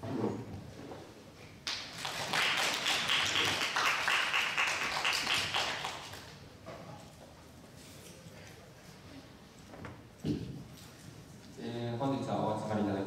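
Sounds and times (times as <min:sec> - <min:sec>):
people clapping: 0:01.6 - 0:06.4.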